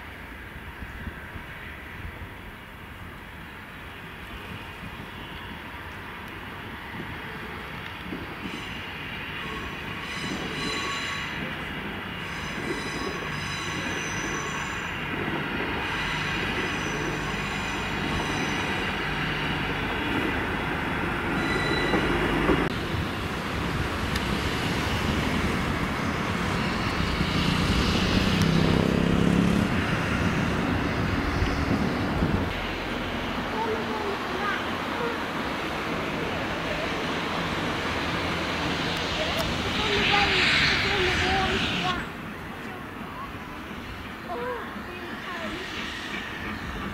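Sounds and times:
rush of steam: 0:03.9 - 0:46.9
thin high squealing: 0:15.8 - 0:19.0, 0:21.3 - 0:22.3
steam hiss: 0:37.1 - 0:42.2.

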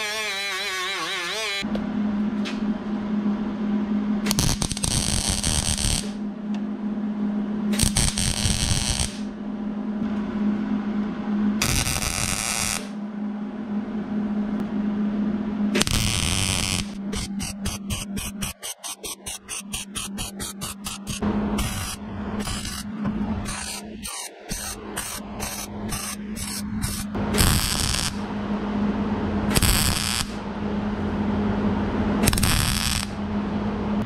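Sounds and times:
grinder whining: 0:00.0 - 0:01.7, 0:15.8 - 0:28.2, 0:32.2 - 0:33.2
welding sizzle: 0:00.0 - 0:01.7, 0:04.3 - 0:06.2, 0:07.7 - 0:09.3, 0:11.6 - 0:13.0, 0:15.8 - 0:28.2, 0:29.5 - 0:30.4, 0:32.2 - 0:33.2
low welder hum: 0:00.0 - 0:34.0.

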